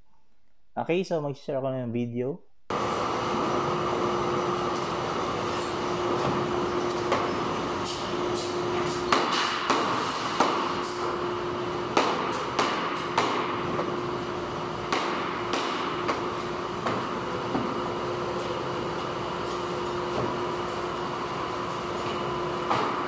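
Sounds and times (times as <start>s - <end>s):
factory machinery hum: 2.7s - 23.0s.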